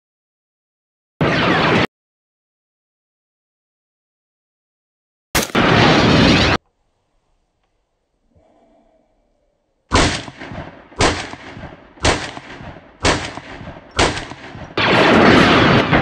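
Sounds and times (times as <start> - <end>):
rifle shots with echo: 5.4 - 6.6, 9.9 - 16.0.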